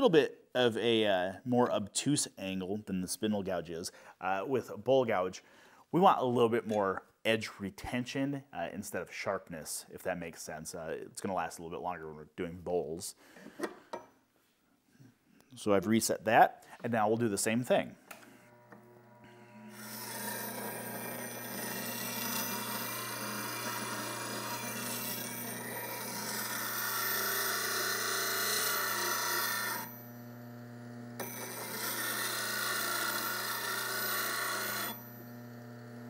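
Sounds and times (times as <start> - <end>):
bench grinder motor humming: 18.3 - 36.0
metal tool grinding on wheel: 19.3 - 30.1, 31.2 - 35.4.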